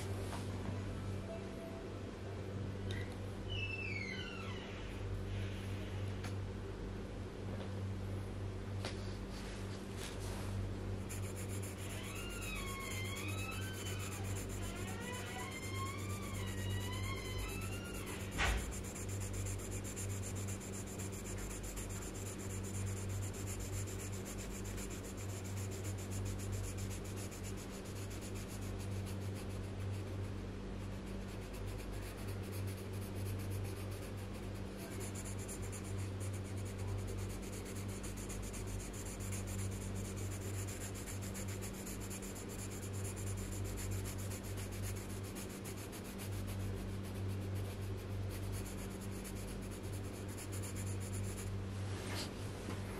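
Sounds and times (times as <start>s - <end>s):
low electrical hum: 0.0s - 52.9s
pencil scratching on paper: 11.0s - 51.6s.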